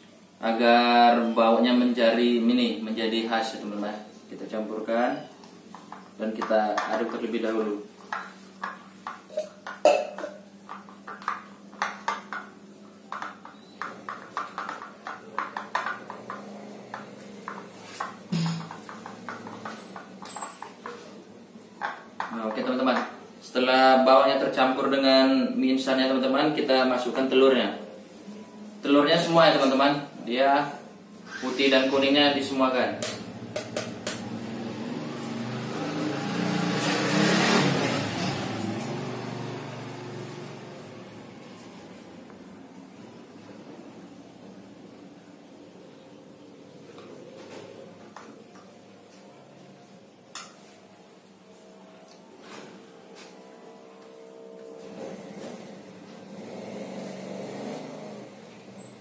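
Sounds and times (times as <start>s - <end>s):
spoon tapping eggshell: 18.3s - 19.5s
vehicle passing by: 34.2s - 42.2s, 54.7s - 58.8s.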